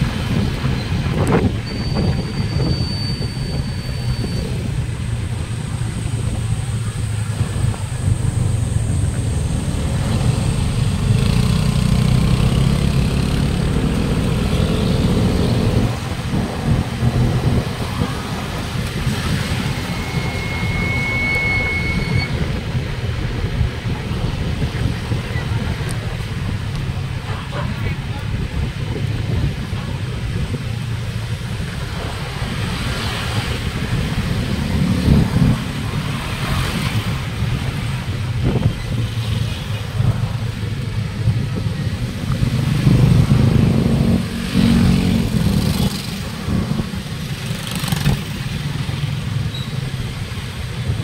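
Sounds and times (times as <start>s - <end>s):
wind and road noise: 0.0s - 51.0s
motorcycle engine running: 5.1s - 19.2s.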